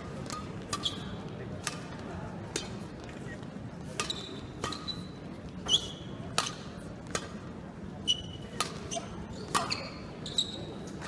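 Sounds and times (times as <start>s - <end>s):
rackets hitting shuttlecock: 0.0s - 3.2s, 3.8s - 7.6s, 8.2s - 10.1s
shoes squeaking on court: 0.1s - 1.3s, 3.2s - 6.6s, 8.0s - 11.0s.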